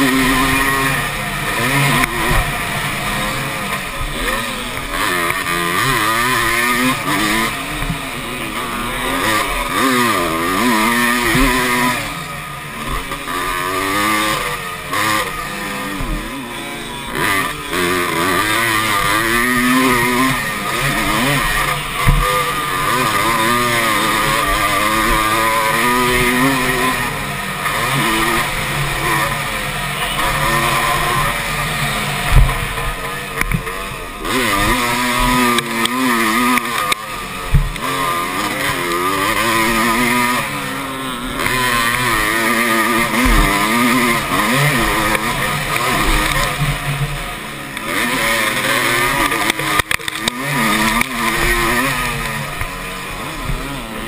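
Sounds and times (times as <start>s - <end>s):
motocross bike engine revving: 0.0s - 54.0s
sharp thumps: 18.4s - 26.7s, 28.2s - 47.9s.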